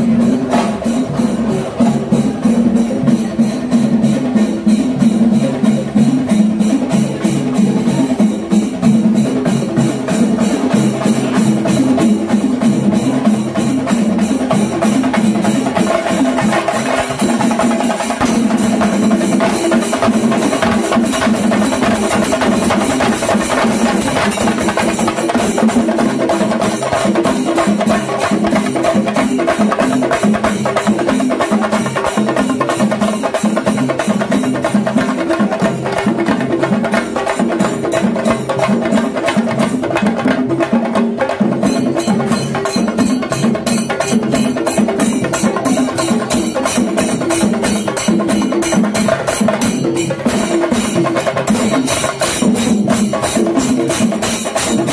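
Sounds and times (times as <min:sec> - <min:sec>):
hand cymbals clashing: 0:00.0 - 0:39.8, 0:41.1 - 0:54.9
drums beaten in fast rhythm: 0:00.0 - 0:54.9.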